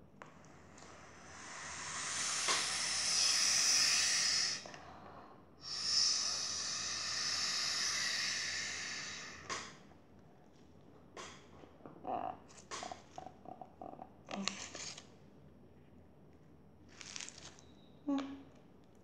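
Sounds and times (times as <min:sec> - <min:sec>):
air blown through a straw: 0:01.0 - 0:04.8, 0:05.6 - 0:09.8.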